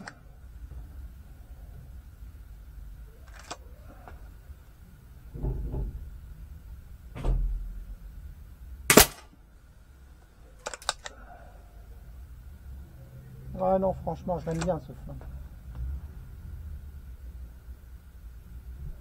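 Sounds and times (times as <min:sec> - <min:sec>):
sharp clicks: 0:03.3 - 0:03.6, 0:10.6 - 0:11.2
air pistol shot: 0:08.9 - 0:09.4.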